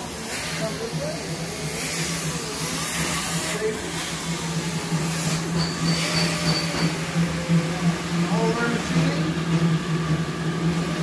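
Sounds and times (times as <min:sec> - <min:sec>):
workshop machinery humming: 0:00.0 - 0:11.0
thin high whine: 0:03.0 - 0:07.3.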